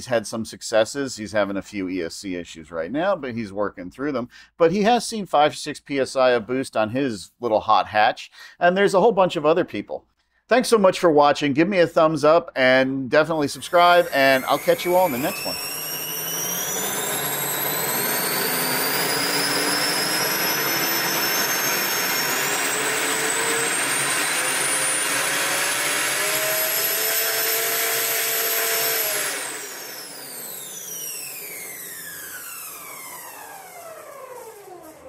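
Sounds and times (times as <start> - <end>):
supercharger whine: 13.5 - 35.0.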